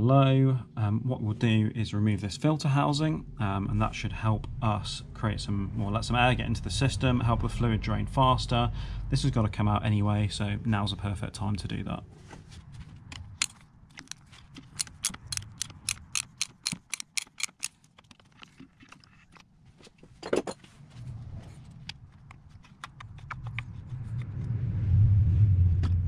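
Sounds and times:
low rumble: 0.7 - 16.1, 20.7 - 26.0
socket ratchet clicking: 13.2 - 18.6.

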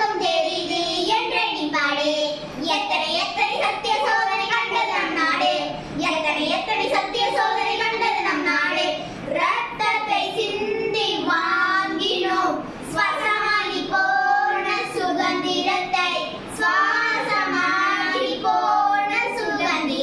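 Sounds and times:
girls singing into microphone: 6.6 - 20.0.

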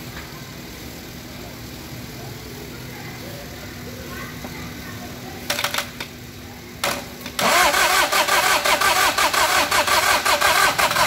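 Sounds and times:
starter motor cranking engine: 6.8 - 11.0
diesel engine running rhythmically: 7.4 - 11.0.

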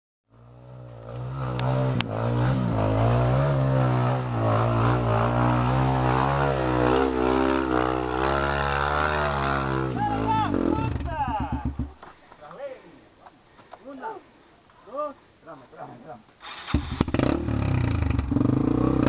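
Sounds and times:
dirt bike engine revving: 0.4 - 11.9, 16.4 - 19.0.

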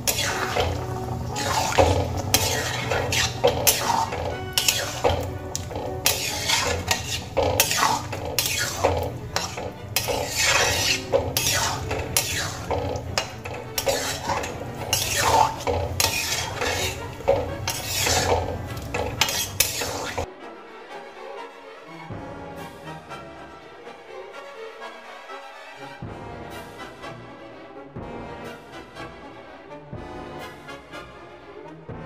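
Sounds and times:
metal spatula scraping a pan: 0.0 - 20.3.

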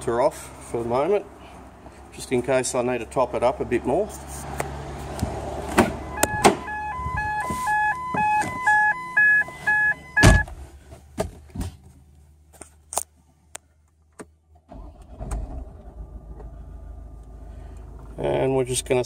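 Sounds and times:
car engine starting and idling: 4.7 - 10.7, 14.6 - 19.0
car door shutting: 5.7 - 10.6
car two-note warning chime: 6.1 - 10.4.

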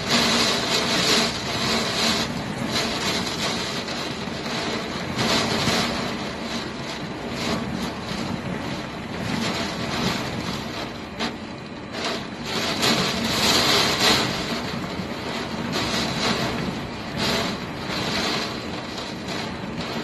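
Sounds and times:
driving rain: 0.0 - 20.0
hurricane wind: 0.0 - 20.0.

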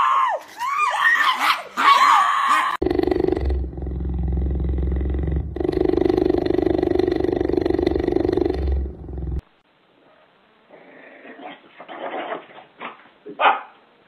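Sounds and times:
animal and room noises: 0.0 - 14.0
cheetah purring: 2.8 - 9.4.

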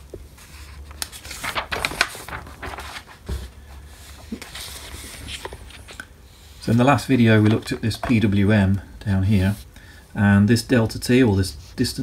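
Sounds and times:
faint low hum: 0.0 - 12.0
sleeve and paper rustling: 0.3 - 6.0.

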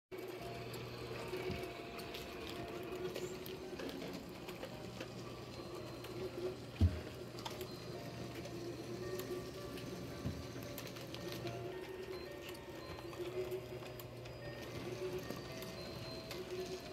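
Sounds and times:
small electric motors clicking: 0.2 - 16.9.

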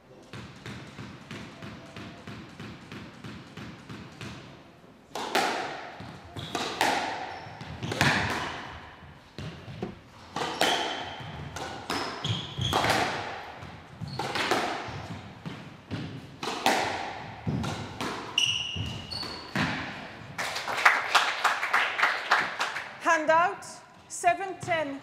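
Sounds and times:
squash ball hitting rackets and walls: 0.2 - 20.7
shoes squeaking on court floor: 6.0 - 16.3, 17.4 - 20.0
applause: 20.4 - 23.0.

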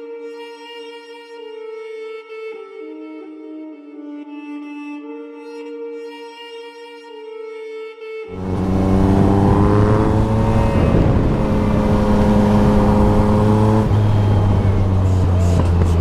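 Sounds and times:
motorcycle engine running: 8.3 - 16.0.

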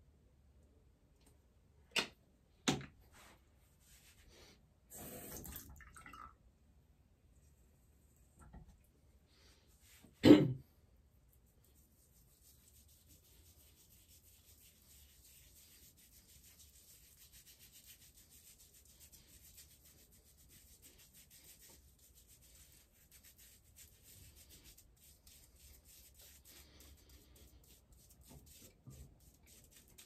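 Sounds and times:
fingers rubbing lather into beard: 11.4 - 30.0.

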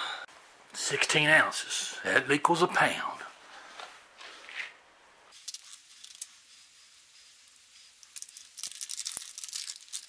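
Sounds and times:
shredded cheese rustling: 5.8 - 10.0.

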